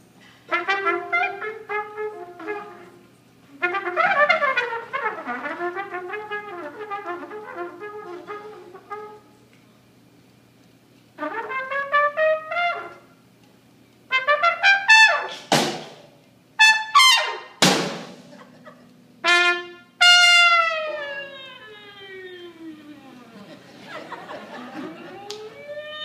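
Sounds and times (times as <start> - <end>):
jazz trumpet solo: 0.4 - 9.4, 11.2 - 13.2, 14.1 - 15.5, 16.6 - 17.8, 19.2 - 22.9.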